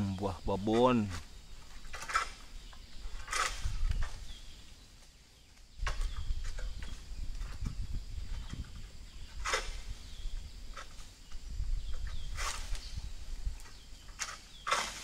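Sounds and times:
vegetation rustling: 0.0 - 15.0
low rumbling on microphone: 5.8 - 14.0.

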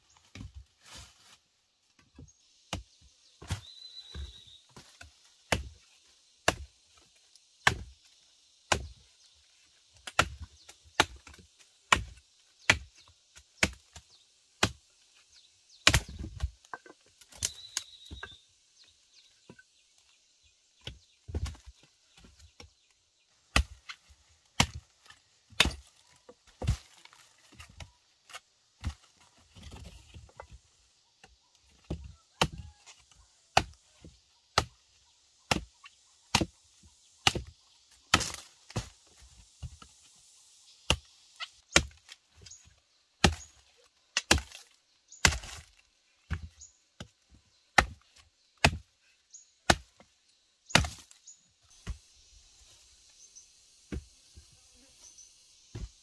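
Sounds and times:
blade chopping into wood: 38.1 - 38.9, 50.7 - 51.2.

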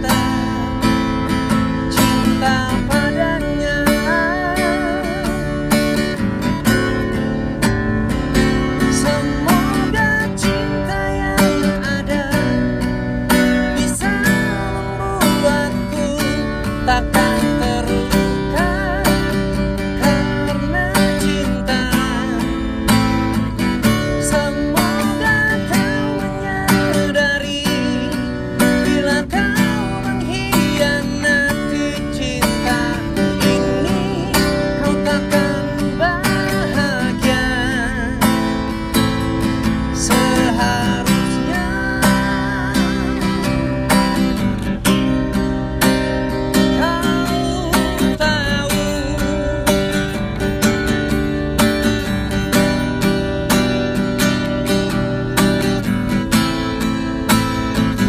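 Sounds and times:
man singing: 0.0 - 7.2, 8.3 - 45.4, 46.1 - 58.0
acoustic guitar strumming: 0.0 - 58.0.

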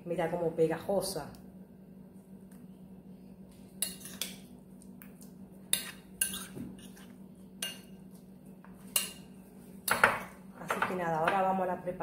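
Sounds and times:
spoon stirring thick batter: 3.4 - 9.9.

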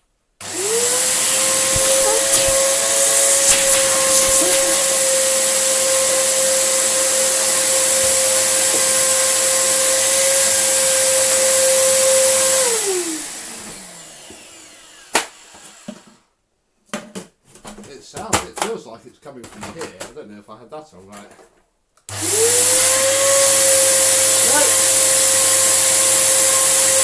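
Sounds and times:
vacuum cleaner motor whine: 0.4 - 16.2, 22.1 - 27.0.

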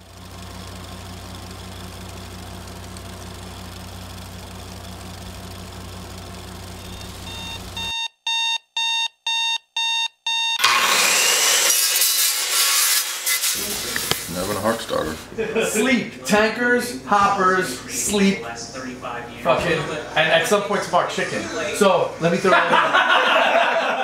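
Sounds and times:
low hum: 0.0 - 7.9
alarm clock beeping: 6.8 - 10.7.

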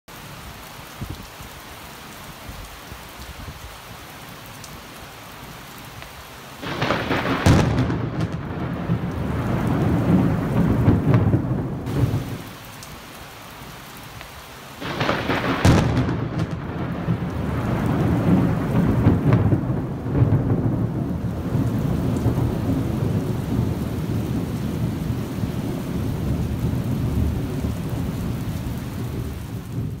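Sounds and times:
rain falling: 0.1 - 30.0
thunder crack and rumble: 6.6 - 12.6, 14.8 - 30.0.

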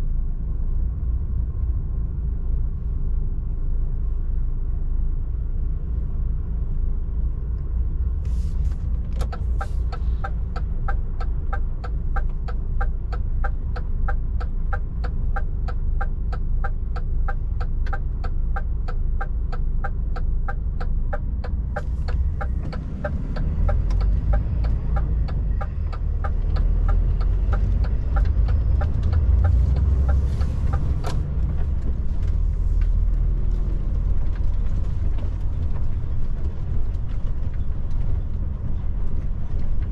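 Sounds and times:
diesel truck engine rumble: 0.0 - 39.9
turn signal ticking: 8.7 - 39.9.

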